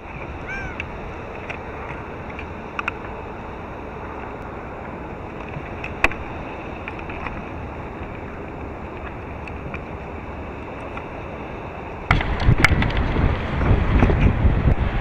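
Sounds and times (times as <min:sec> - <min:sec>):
water noise: 0:00.0 - 0:15.0
wind rumbling on microphone: 0:00.0 - 0:15.0.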